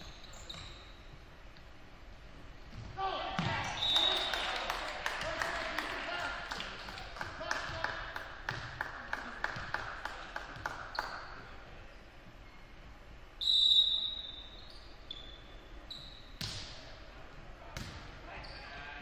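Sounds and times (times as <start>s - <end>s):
sneaker squeaking on hardwood: 0.0s - 1.3s.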